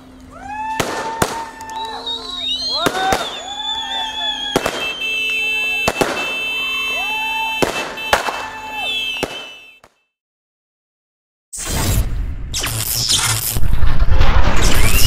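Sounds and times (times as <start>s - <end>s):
fireworks bangs: 0.6s - 9.8s
sliding whistles: 1.4s - 9.8s
steady high tone: 1.6s - 7.6s.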